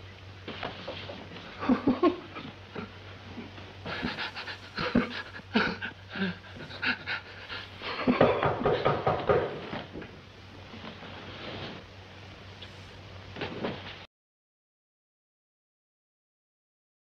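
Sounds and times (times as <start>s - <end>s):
man panting and gasping: 3.9s - 8.1s.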